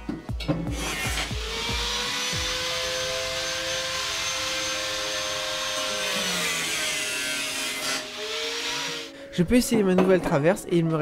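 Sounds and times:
electric power tool cutting: 0.7s - 9.2s.

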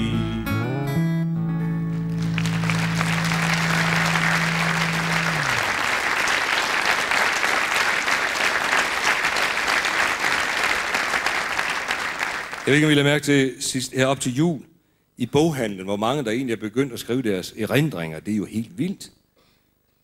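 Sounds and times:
audience applauding: 1.9s - 13.1s.

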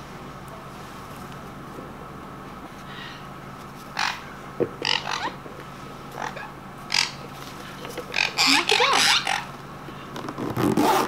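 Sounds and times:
parrots calling and chirping: 3.8s - 9.6s.

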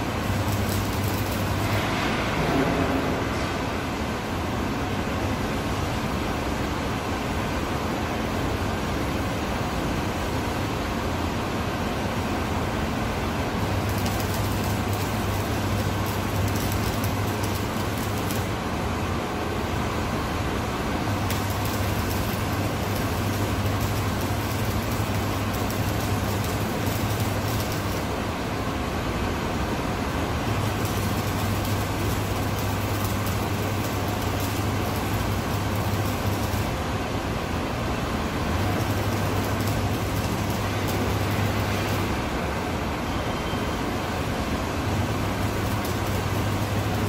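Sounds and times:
welding arc crackle: 0.0s - 3.4s, 12.5s - 19.0s, 19.6s - 42.8s, 44.1s - 47.0s
welding machine low hum: 0.0s - 4.6s, 11.9s - 47.0s
workshop background noise: 30.0s - 43.3s.

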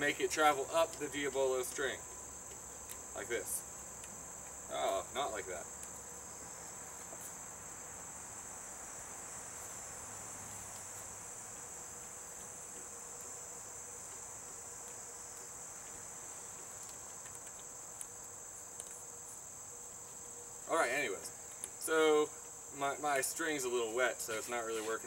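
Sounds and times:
crickets chirping: 0.0s - 25.0s
faint clicks: 16.7s - 19.0s.

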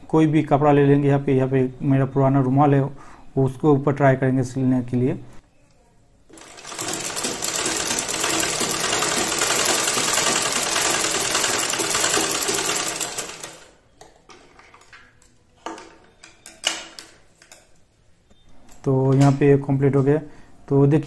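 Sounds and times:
sewing machine running: 6.3s - 13.8s.

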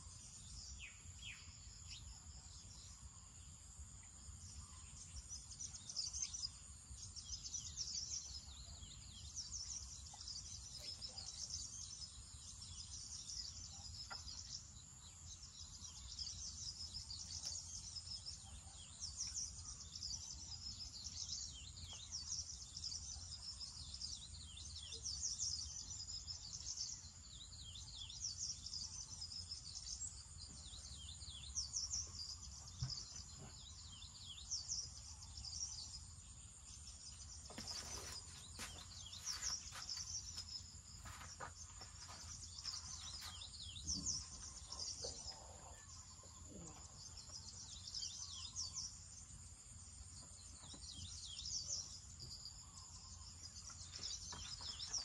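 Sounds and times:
birds chirping: 21.0s - 55.0s.

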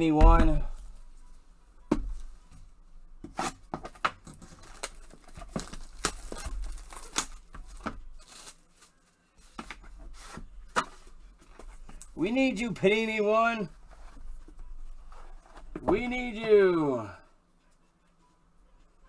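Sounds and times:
cardboard rustling and scraping: 3.2s - 12.0s.

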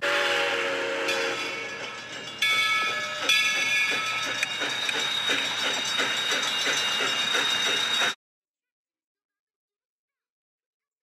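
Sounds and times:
steam whistle: 0.0s - 1.8s
locomotive exhaust chuffs: 0.0s - 8.2s.

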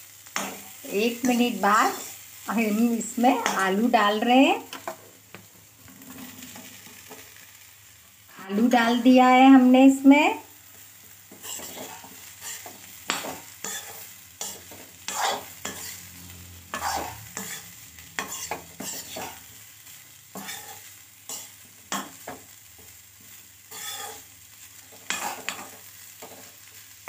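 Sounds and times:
vegetables sizzling: 0.0s - 27.0s
metal spoon scraping a pan: 0.2s - 3.8s, 5.8s - 7.4s, 11.3s - 19.5s, 20.3s - 22.4s, 23.7s - 26.8s.

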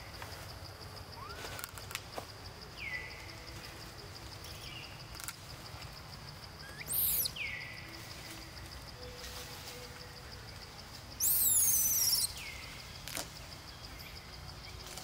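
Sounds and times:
insects whining: 0.0s - 15.0s
baby monkey crying: 6.6s - 7.4s, 11.2s - 12.4s.

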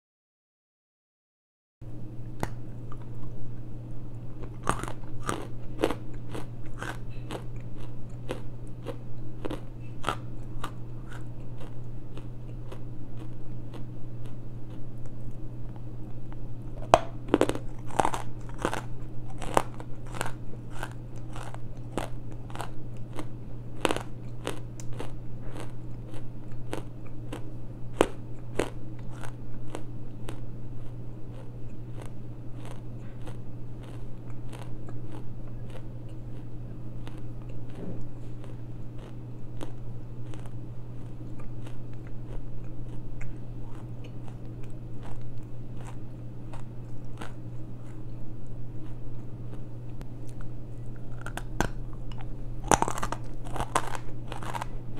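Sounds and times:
low steady hum: 1.8s - 54.9s
crunching of clay being chewed: 2.4s - 54.9s.

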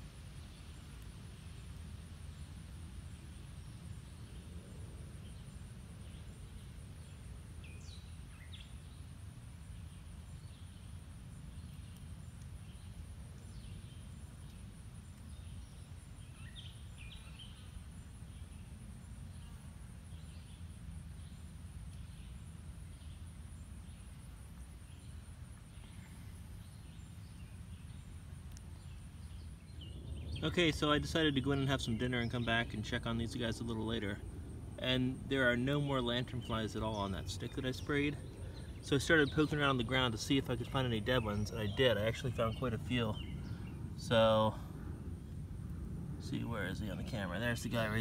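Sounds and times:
insect trill: 0.0s - 48.0s
low background rumble: 0.0s - 48.0s
bird chirps: 9.7s - 21.4s, 36.0s - 44.5s.

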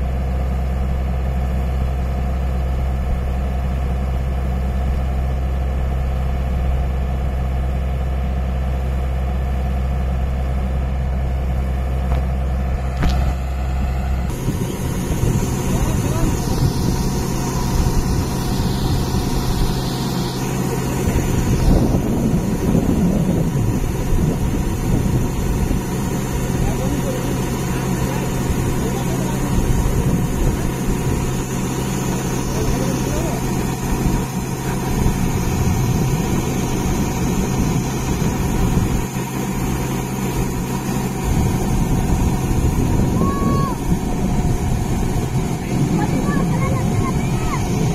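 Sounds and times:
auger discharging grain: 0.0s - 47.9s
combine harvester engine running: 0.0s - 47.9s.

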